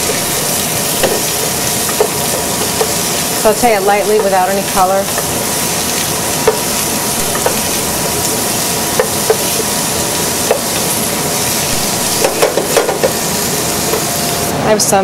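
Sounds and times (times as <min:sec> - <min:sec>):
vegetables sizzling in a pan: 0:00.0 - 0:14.5
wooden spoon knocking on pan: 0:01.0 - 0:03.0, 0:04.2 - 0:04.4, 0:06.4 - 0:06.7, 0:07.3 - 0:08.1, 0:08.9 - 0:09.6, 0:12.2 - 0:13.2.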